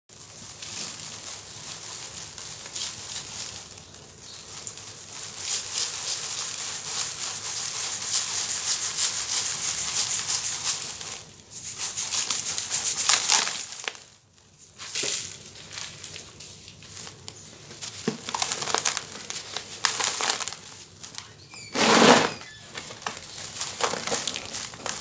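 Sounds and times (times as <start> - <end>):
sand pouring into plastic bowl: 21.7 - 22.4, 23.5 - 25.0.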